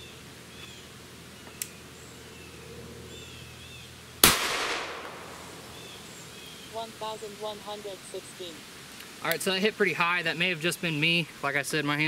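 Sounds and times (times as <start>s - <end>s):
pistol shot: 4.2s - 5.6s.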